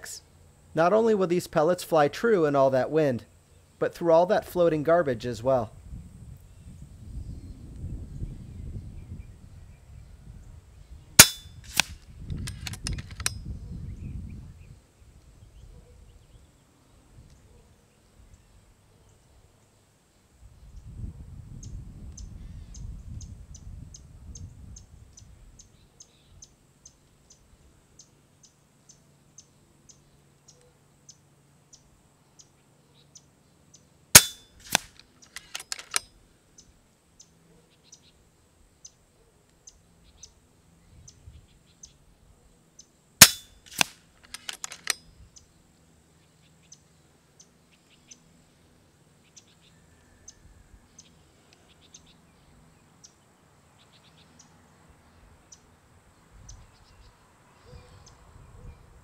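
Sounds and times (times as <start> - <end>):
air rifle shot crack: 11.2 - 13.3, 34.2 - 35.9, 43.2 - 45.0.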